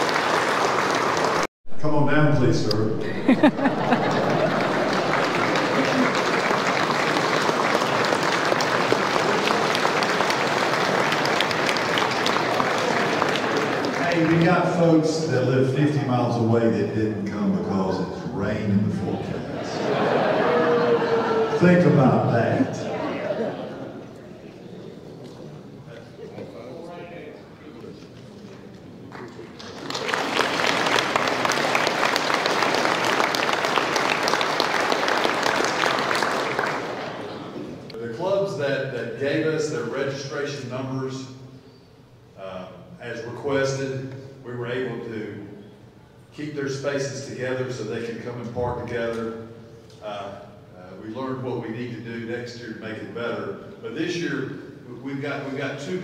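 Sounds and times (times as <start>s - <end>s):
audience applauding: 0.0s - 1.5s, 3.4s - 15.1s, 29.0s - 37.9s.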